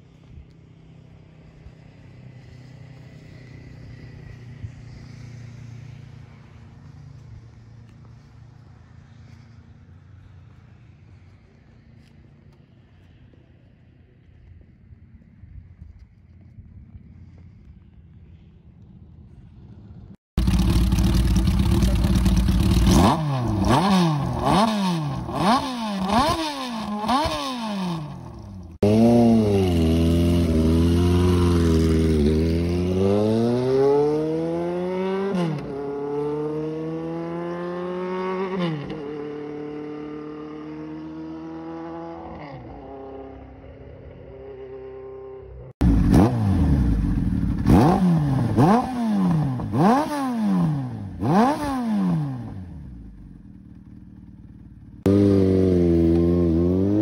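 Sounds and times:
motorcycle accelerating through gears: 0:16.2 - 0:57.0
motorcycle engine revving: 0:19.5 - 0:57.0.

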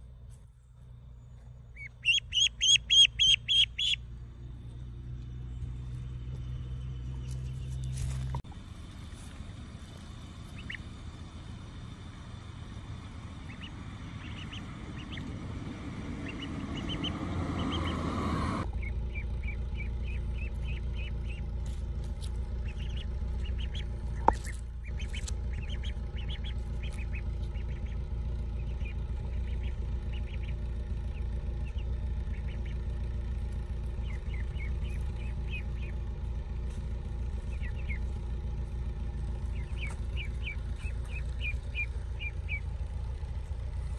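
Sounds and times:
low rumble: 0:00.0 - 0:43.9
ducklings peeping: 0:01.7 - 0:04.1, 0:09.1 - 0:11.0, 0:13.2 - 0:42.8.

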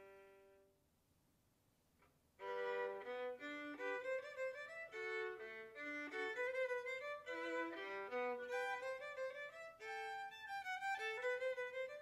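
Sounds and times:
violin low note: 0:02.4 - 0:12.0.

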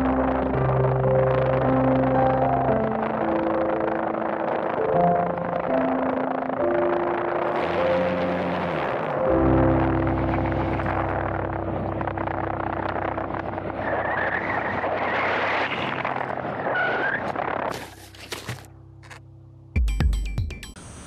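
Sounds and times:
model airplane motor drone: 0:07.3 - 0:09.4
wind noise: 0:09.8 - 0:18.7.

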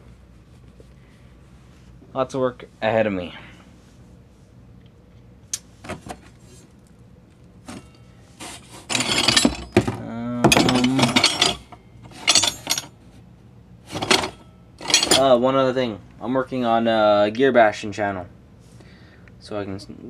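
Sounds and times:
metal blanks clattering in a box: 0:08.5 - 0:13.0, 0:13.9 - 0:15.3.

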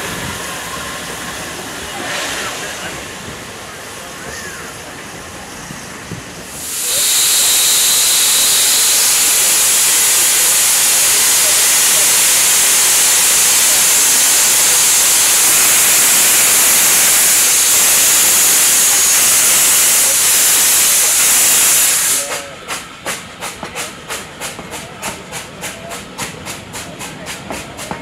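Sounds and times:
loud hiss of escaping steam: 0:00.0 - 0:27.6
rhythmic locomotive beat: 0:21.9 - 0:28.0.

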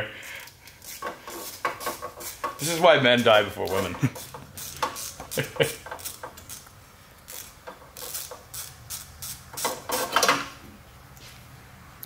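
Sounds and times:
ratchet wrench clicking on metal: 0:00.8 - 0:06.7, 0:07.3 - 0:10.4.

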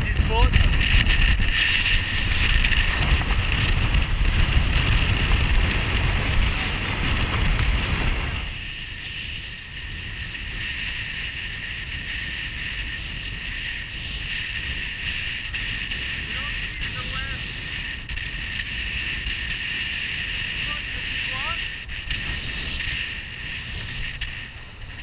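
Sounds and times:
water rushing past: 0:00.0 - 0:08.7
steady high whine: 0:00.0 - 0:25.0
wind buffeting microphone: 0:00.0 - 0:25.0.

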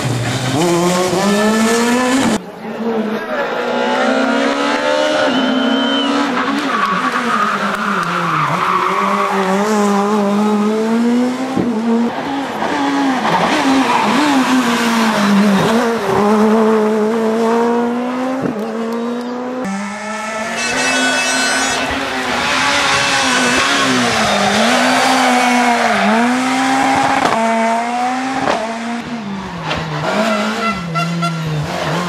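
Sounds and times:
rally car engine revving: 0:00.0 - 0:32.0
tyre squeal: 0:20.4 - 0:26.5.

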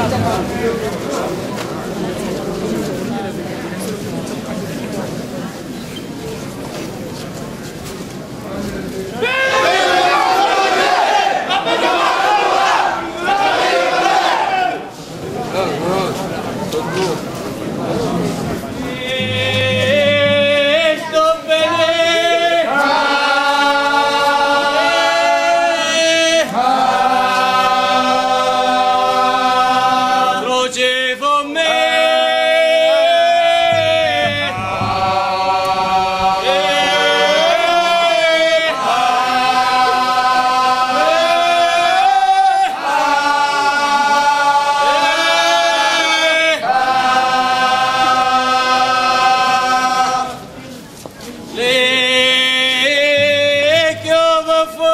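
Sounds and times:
group of voices chanting: 0:09.3 - 0:14.9, 0:31.6 - 0:50.5.

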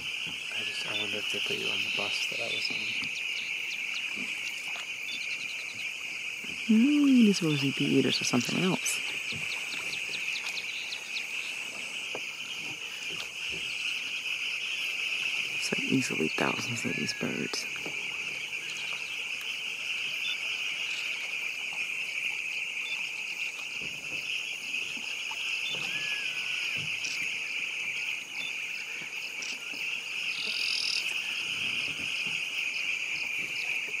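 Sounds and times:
high-pitched chorus of animal calls: 0:00.0 - 0:21.7, 0:24.4 - 0:33.8.

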